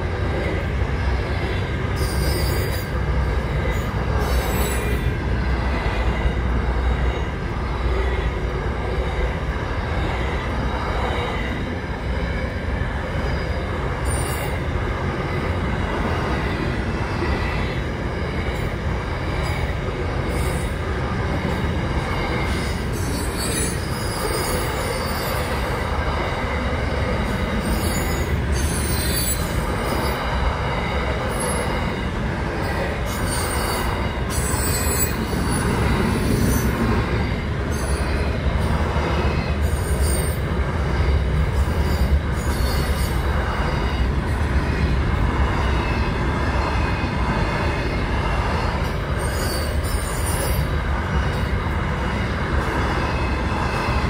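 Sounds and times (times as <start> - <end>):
train wheels rumbling on rails: 0.0 - 54.0.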